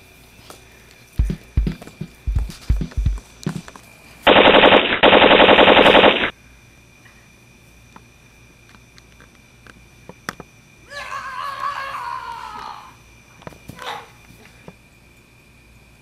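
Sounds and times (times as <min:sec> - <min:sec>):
low thumps: 0:01.2 - 0:03.2
machine-gun fire bursts: 0:01.2 - 0:03.2, 0:04.3 - 0:06.3.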